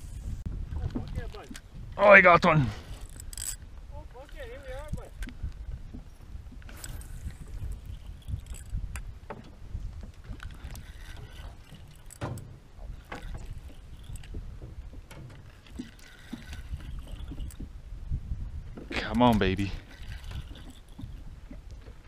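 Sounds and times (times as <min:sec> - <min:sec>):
wind rumbling on microphone: 0:00.0 - 0:22.0
fishing reel clicks and knocks: 0:02.9 - 0:05.5, 0:06.6 - 0:09.1, 0:10.2 - 0:14.4, 0:15.1 - 0:17.6.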